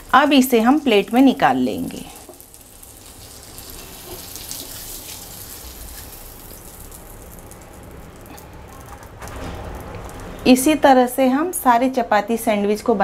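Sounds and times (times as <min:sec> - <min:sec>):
butter sizzling in a hot pan: 0:00.0 - 0:07.9.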